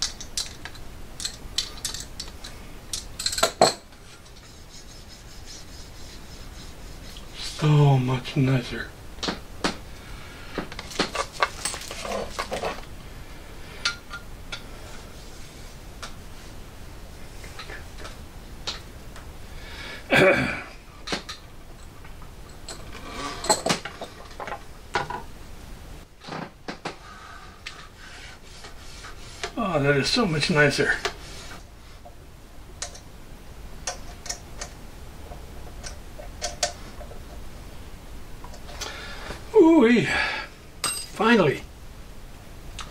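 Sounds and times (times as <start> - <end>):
metal parts and tools clinking: 0.0 - 3.9, 10.9 - 12.8, 40.8 - 41.2.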